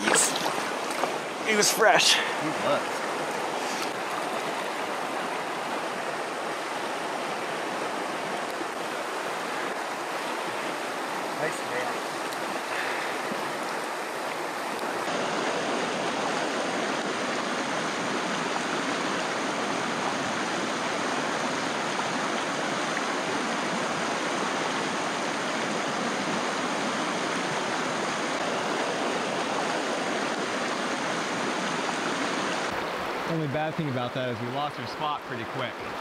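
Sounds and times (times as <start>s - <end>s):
river water rushing over rocks: 0.0s - 36.0s.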